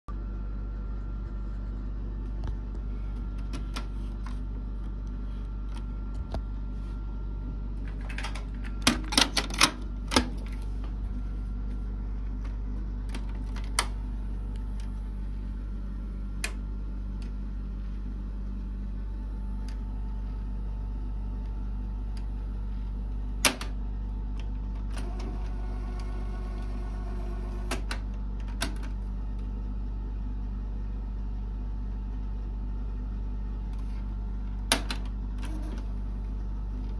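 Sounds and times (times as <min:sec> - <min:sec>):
low hum: 0:00.1 - 0:36.9.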